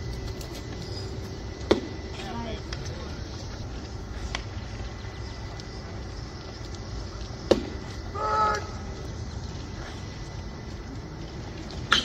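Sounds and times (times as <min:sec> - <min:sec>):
open-air background noise: 0:00.0 - 0:12.0
baseball smacking into mitt: 0:07.5 - 0:07.8
umpire shouting: 0:08.2 - 0:08.9.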